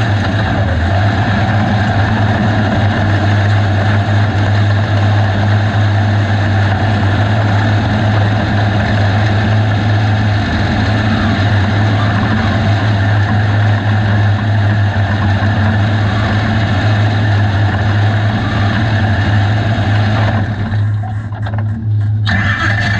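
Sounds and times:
race car engine idling: 0.0 - 22.9.

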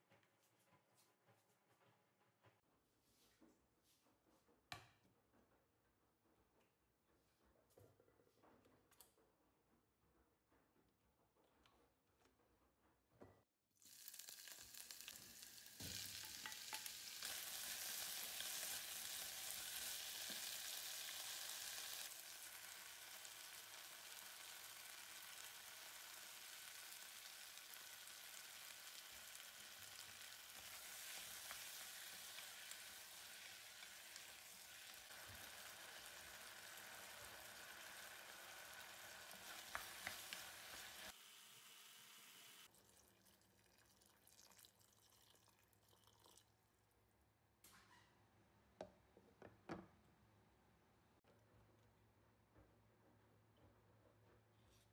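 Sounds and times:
vegetables sizzling in a pot: 13.8 - 42.8.

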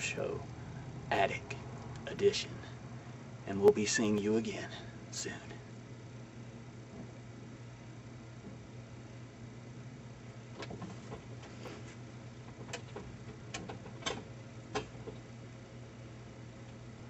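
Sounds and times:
steady low hum: 0.0 - 17.0
knocks and creaks of climbing: 10.5 - 15.3.

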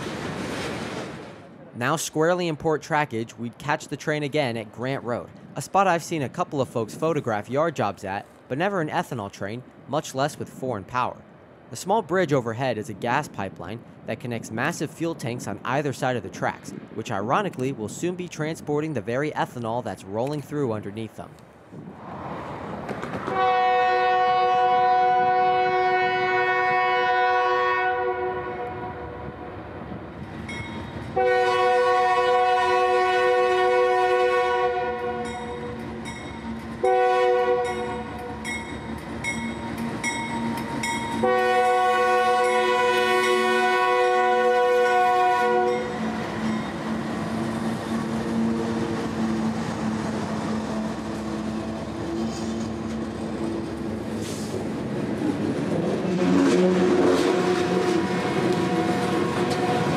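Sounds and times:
train wheels rolling on rails: 0.0 - 1.7, 21.7 - 23.8, 35.0 - 59.9
diesel locomotive engine: 0.0 - 59.9
locomotive horn: 23.3 - 29.4, 31.1 - 35.7, 36.8 - 38.4, 41.1 - 46.8, 56.0 - 59.9.

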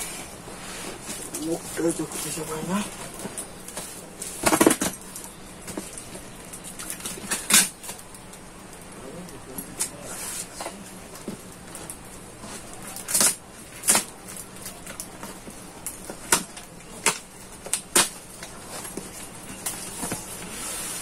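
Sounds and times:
packing tape ripping: 6.9 - 8.0, 12.6 - 15.1, 16.3 - 18.9
cardboard rustling: 17.8 - 21.0.

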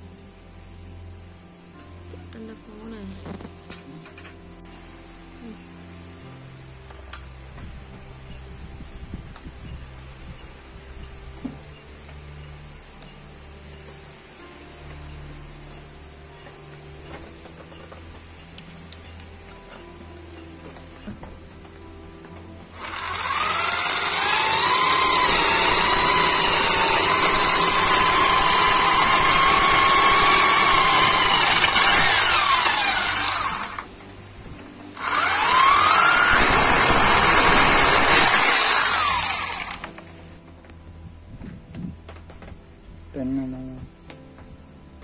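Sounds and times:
rotary hammer drilling concrete: 22.7 - 33.9, 35.0 - 40.0.

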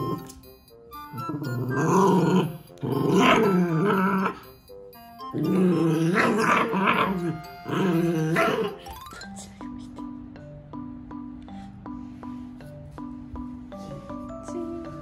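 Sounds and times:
dogs growling: 1.1 - 4.4, 5.3 - 9.0.

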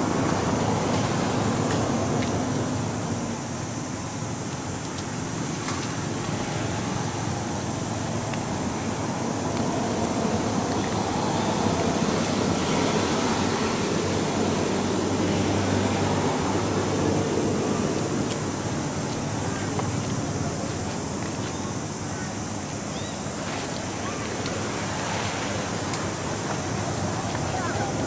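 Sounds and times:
faint high chirps: 22.9 - 23.3.

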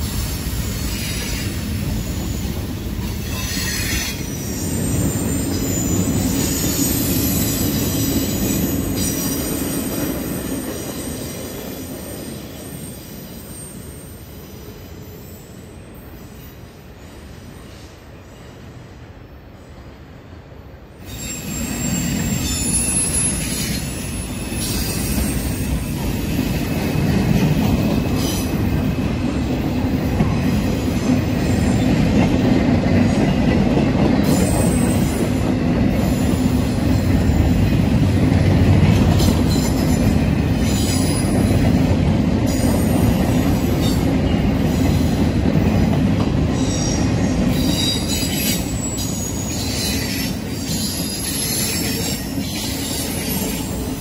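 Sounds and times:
freight train rumbling past: 0.0 - 54.0
high-pitched wheel squeals: 3.2 - 9.8, 21.0 - 26.0, 46.6 - 53.7.

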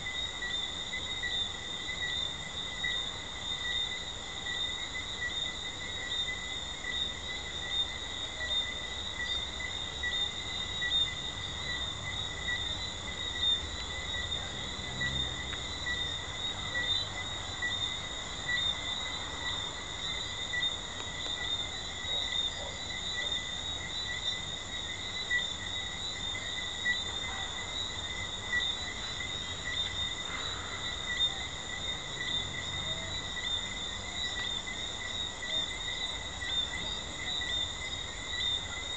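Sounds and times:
treefrogs calling in chorus: 0.0 - 38.9.

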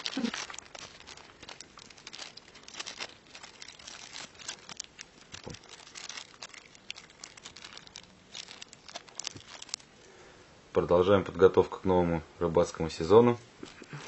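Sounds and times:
plastic bag crinkling: 0.0 - 10.2, 13.6 - 14.0.

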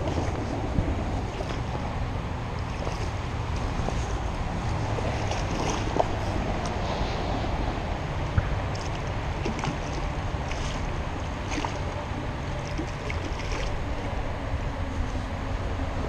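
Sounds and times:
wind buffeting microphone: 0.0 - 16.0
fish splashing at surface: 2.6 - 4.1, 4.7 - 7.4, 8.7 - 11.9.

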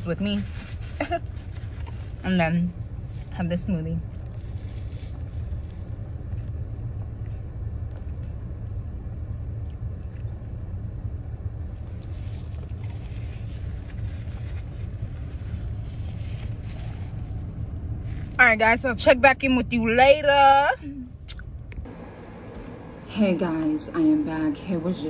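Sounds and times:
faint rustles and clicks: 0.0 - 8.8, 9.8 - 18.9
car engine idling: 0.0 - 25.0.

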